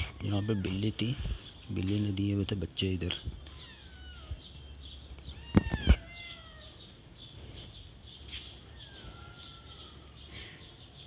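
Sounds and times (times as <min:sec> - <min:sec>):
kittens mewing: 0:00.0 - 0:01.2, 0:03.4 - 0:04.6, 0:05.2 - 0:07.0.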